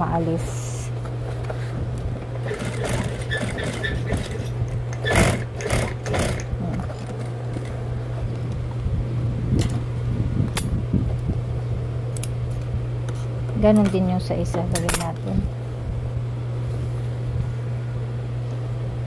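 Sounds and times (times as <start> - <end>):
motor hum: 0.0 - 19.0
sewing machine stitching: 2.4 - 6.5.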